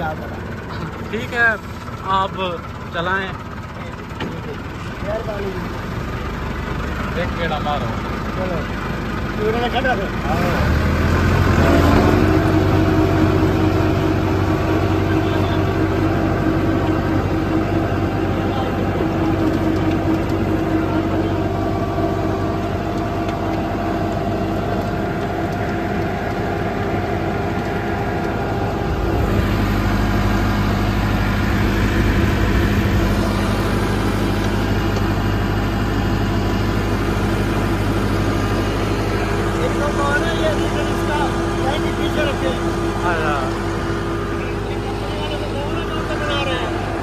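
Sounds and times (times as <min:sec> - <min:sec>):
tractor diesel engine under load: 0:00.0 - 0:47.0.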